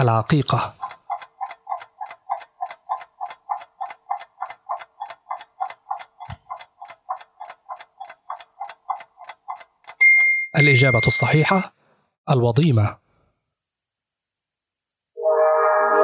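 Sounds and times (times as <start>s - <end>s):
clock ticking timer: 0.0s - 11.5s.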